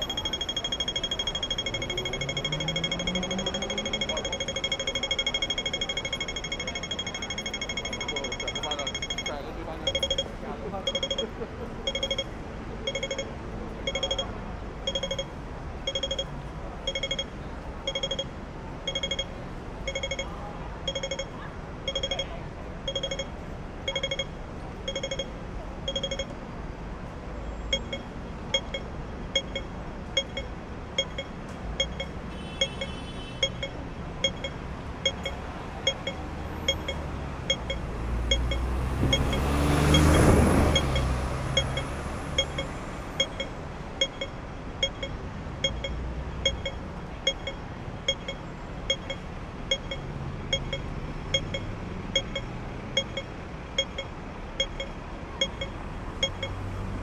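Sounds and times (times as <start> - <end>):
pedestrian crossing signal beeping: 0.0 - 57.0
street traffic: 0.0 - 57.0
vehicle passing: 1.8 - 4.3, 34.7 - 43.4.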